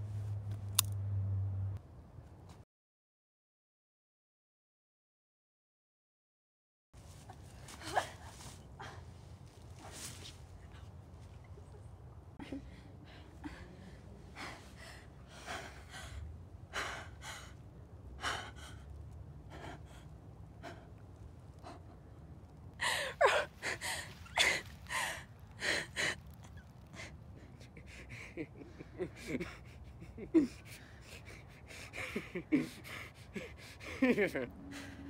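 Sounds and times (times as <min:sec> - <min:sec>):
woman gasping: 0:22.8 - 0:26.2.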